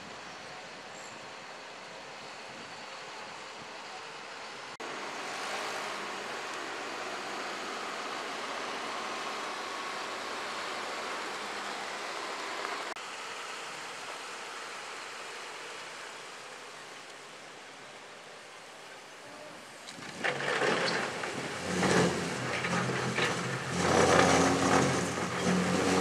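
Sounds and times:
tractor engine running: 4.8s - 16.6s, 19.9s - 26.0s.

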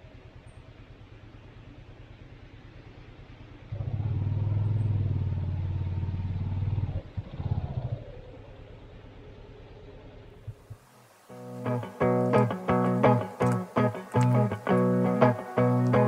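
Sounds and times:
motorcycle engine revving: 0.0s - 10.6s.

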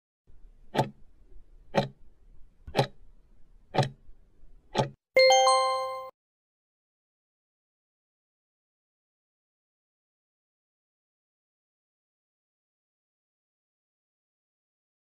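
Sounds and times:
clock ticks: 0.7s - 1.0s, 1.7s - 2.0s, 2.7s - 3.0s, 3.7s - 4.0s, 4.7s - 5.0s
bell-like ding: 5.2s - 6.1s.

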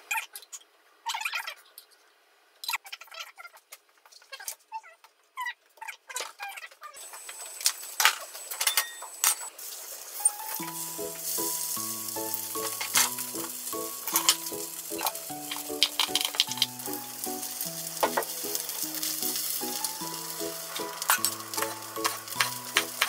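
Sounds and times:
food sizzling in oil: 7.0s - 23.0s
slow background music: 10.2s - 23.0s.

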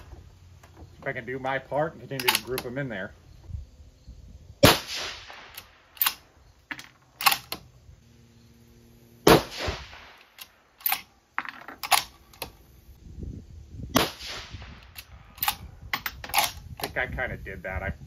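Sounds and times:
rifle bolt clicks: 2.1s - 2.8s, 5.5s - 6.2s, 7.2s - 7.7s, 10.2s - 11.1s, 11.8s - 12.5s, 14.8s - 16.9s
rifle shots with echo: 4.6s - 6.2s, 9.2s - 10.3s, 14.0s - 15.6s.

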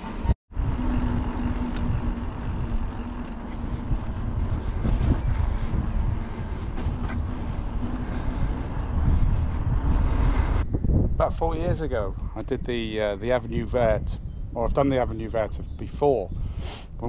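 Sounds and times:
bicycle tyre and road noise: 0.0s - 11.7s
wind rumbling on microphone: 0.0s - 17.0s.

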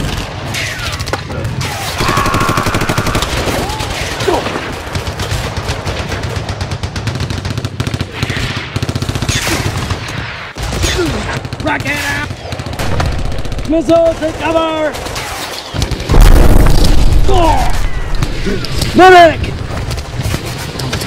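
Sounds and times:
gunshots: 0.0s - 21.0s
rapid machine-gun fire: 2.0s - 17.2s.

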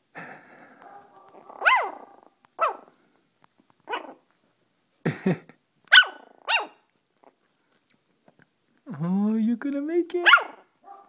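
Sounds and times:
puppy barking gruffly: 0.8s - 2.9s, 3.9s - 4.2s, 5.9s - 6.8s, 10.2s - 11.0s
puppy yipping: 0.9s - 2.9s, 3.9s - 4.2s, 5.9s - 6.9s, 10.2s - 11.0s.

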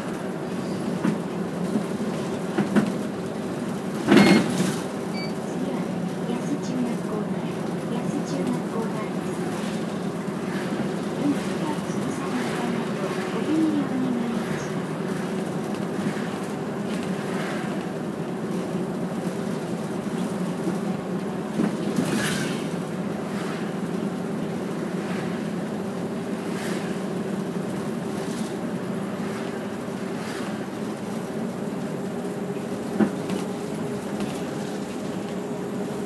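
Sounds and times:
bus engine drone: 0.0s - 36.0s
road noise: 0.0s - 36.0s.

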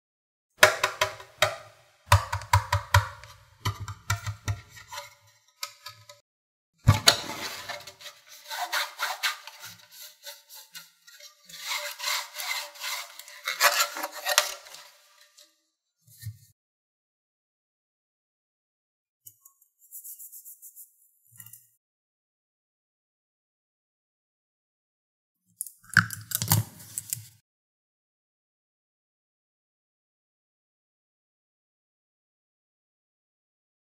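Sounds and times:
plastic lid clicking and scraping: 0.6s - 6.2s, 6.9s - 15.1s, 25.9s - 27.4s.

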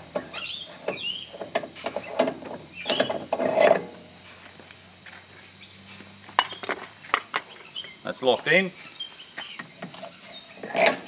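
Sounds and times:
metal clicking and scraping: 0.1s - 4.0s, 9.6s - 11.0s.

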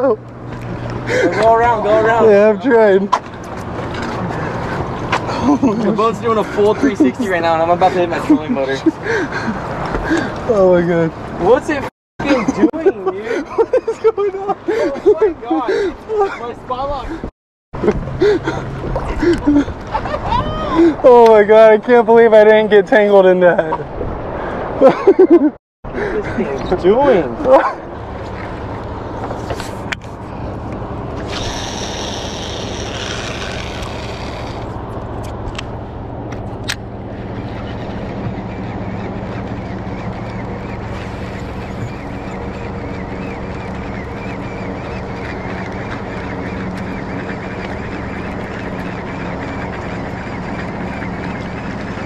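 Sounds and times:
boat motor humming: 0.0s - 21.7s, 25.9s - 52.0s
wind: 0.0s - 52.0s
water noise: 37.0s - 52.0s.

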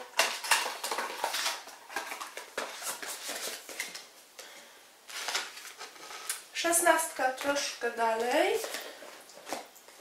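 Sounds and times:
cardboard clicks and rustles: 0.0s - 4.1s.

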